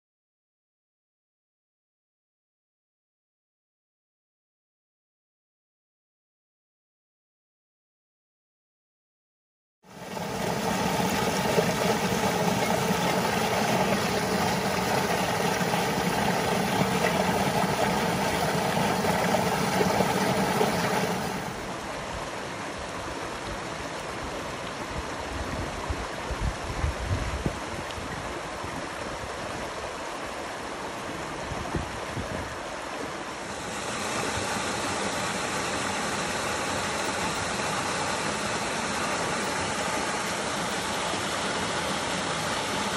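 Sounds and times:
waterfall splashing over rocks: 0:10.0 - 0:25.0, 0:33.3 - 0:42.9.

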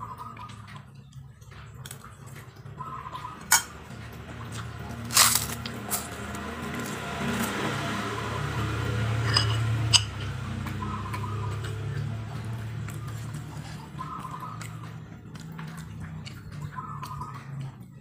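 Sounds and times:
low hum: 0:00.0 - 0:18.0
metal spoon scraping ceramic plate: 0:09.2 - 0:10.4.

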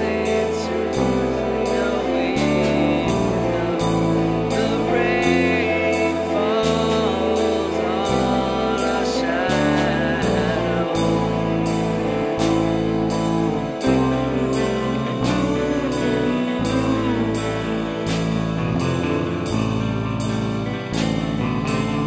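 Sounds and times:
pop song with singing: 0:00.0 - 0:19.7.

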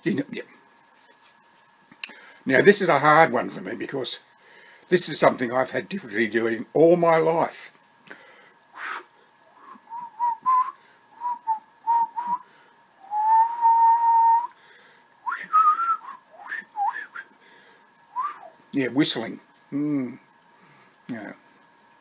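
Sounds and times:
man whistling: 0:08.8 - 0:09.0, 0:09.6 - 0:14.6, 0:15.2 - 0:17.3, 0:18.1 - 0:18.6.

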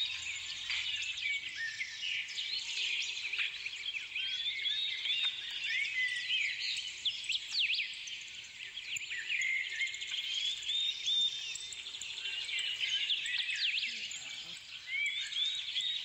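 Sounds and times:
many small birds chirping: 0:00.0 - 0:16.0.

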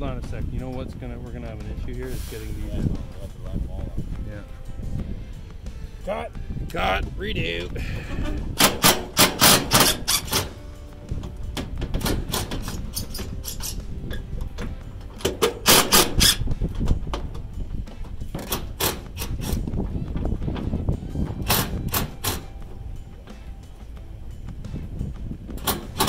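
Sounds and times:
impact driver hammering: 0:08.6 - 0:10.6, 0:11.2 - 0:12.9, 0:15.2 - 0:16.4, 0:21.4 - 0:22.6.

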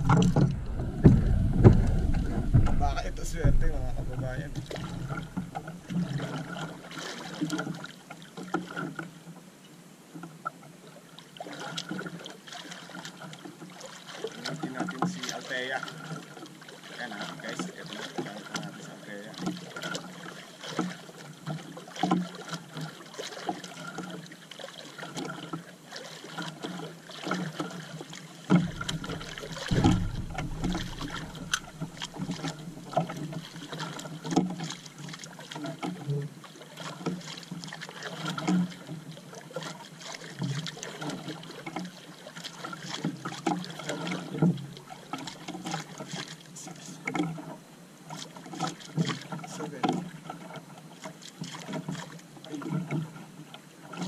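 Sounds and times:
loud dull thump: 0:00.0 - 0:05.7, 0:28.6 - 0:33.2
small knocks on boat: 0:00.0 - 0:09.1, 0:12.9 - 0:24.3, 0:26.3 - 0:54.0
water lapping against boat hull: 0:00.0 - 0:54.0.

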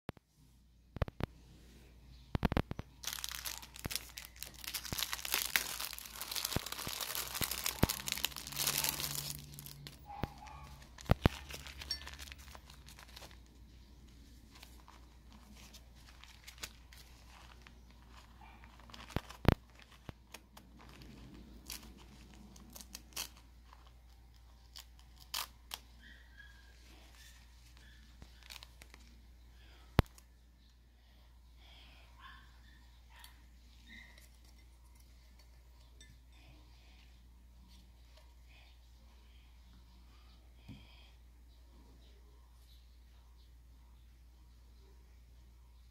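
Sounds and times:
plastic wrapper crinkling and tearing: 0:02.5 - 0:26.2, 0:26.8 - 0:29.2
paper bag rustling: 0:03.0 - 0:24.0.

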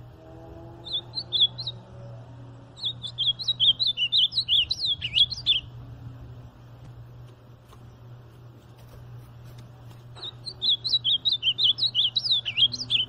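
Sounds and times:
bird singing warbled notes: 0:00.3 - 0:05.9, 0:10.2 - 0:13.0.

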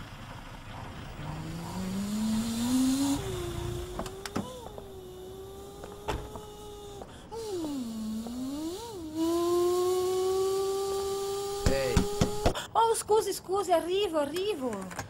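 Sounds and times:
motor whining: 0:00.7 - 0:12.6.

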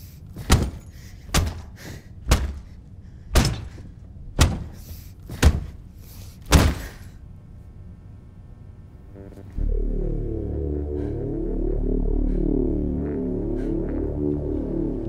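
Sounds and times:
heavy cinematic thudding hits: 0:00.4 - 0:05.8.

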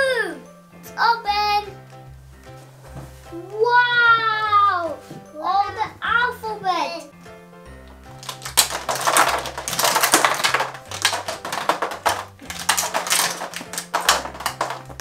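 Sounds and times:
plastic letters clattering: 0:08.2 - 0:15.0.

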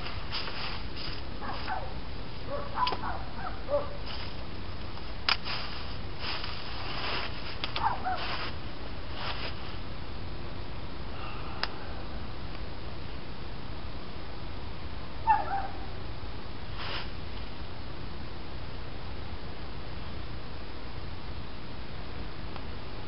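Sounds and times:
wood fire crackling: 0:00.0 - 0:01.9, 0:04.0 - 0:09.9
animal calling: 0:15.3 - 0:15.8.

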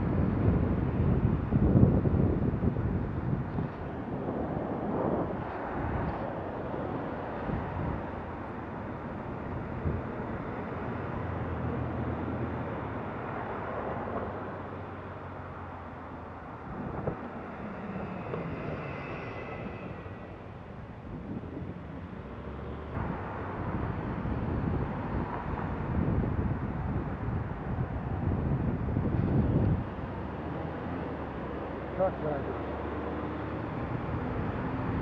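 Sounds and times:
wind on microphone: 0:00.0 - 0:31.7, 0:32.8 - 0:35.0.

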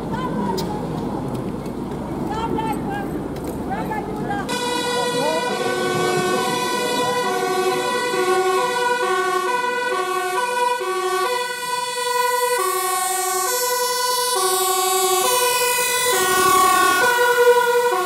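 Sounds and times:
two-tone fire engine siren: 0:04.5 - 0:18.0.

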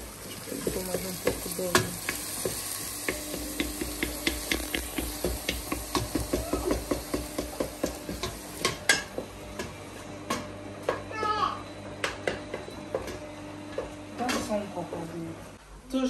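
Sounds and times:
food sizzling in oil: 0:00.0 - 0:09.0.

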